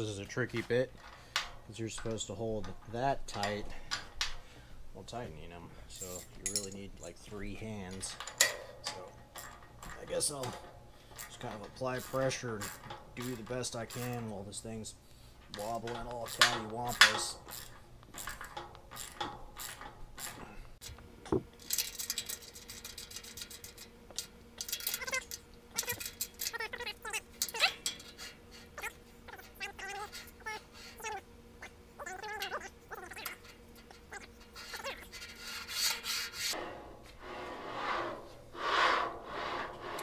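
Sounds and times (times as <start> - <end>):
metal parts clinking: 5.9 - 6.9, 7.9 - 14.4, 21.6 - 31.2
roller bearings rasping on steel rail: 7.3 - 20.9, 21.6 - 31.1, 32.0 - 40.0.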